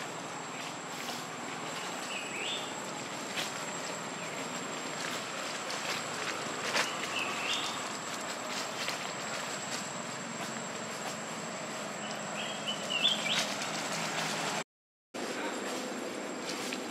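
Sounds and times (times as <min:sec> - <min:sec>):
dry leaves rustling and crackling: 0:00.0 - 0:14.6, 0:15.2 - 0:16.9
high chirping calls: 0:12.0 - 0:13.5.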